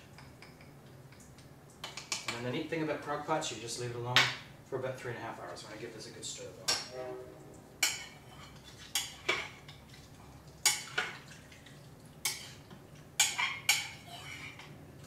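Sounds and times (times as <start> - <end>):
spoon clinking against pot: 13.2 - 14.7.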